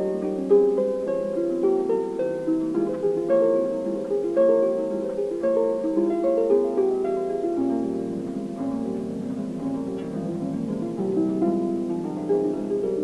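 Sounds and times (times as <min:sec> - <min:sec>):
solo harp music: 0:00.0 - 0:13.0.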